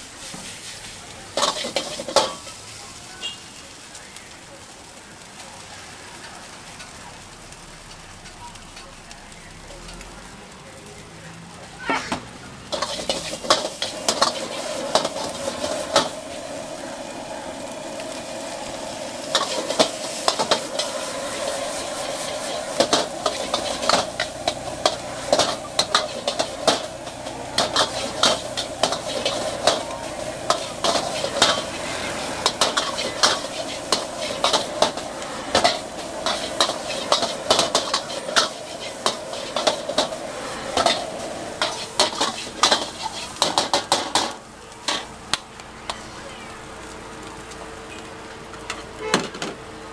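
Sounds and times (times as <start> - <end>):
food sizzling in a wok: 0.0 - 49.9
metal utensils scraping a wok: 0.2 - 2.7, 11.8 - 16.8, 18.1 - 45.2.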